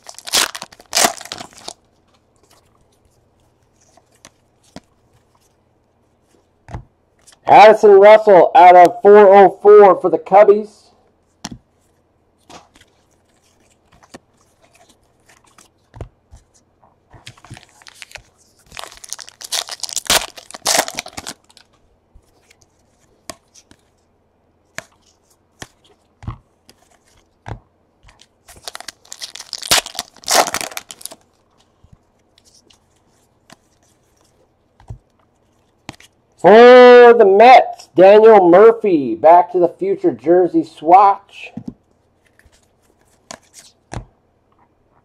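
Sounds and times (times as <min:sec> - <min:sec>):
wrappers tearing and crinkling: 0:00.0 - 0:01.8, 0:17.4 - 0:21.7, 0:28.2 - 0:31.4.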